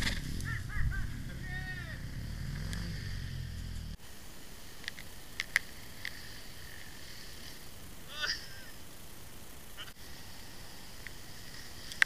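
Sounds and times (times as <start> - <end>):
dirt bike engine idling: 0.0 - 12.0
sharp high clicks: 4.8 - 6.9.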